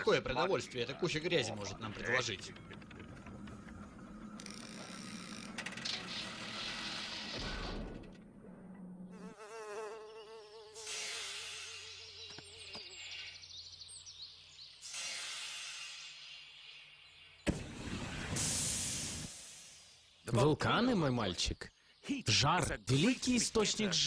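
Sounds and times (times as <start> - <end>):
warbling buzzing insect call: 9.2 - 13.3
hissing haze: 17.5 - 20.2.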